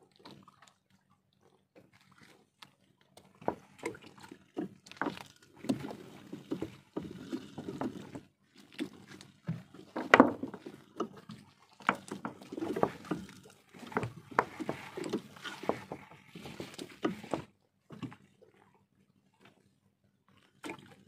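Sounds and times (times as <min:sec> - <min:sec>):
wet net hauled into boat: 0:03.2 - 0:18.3.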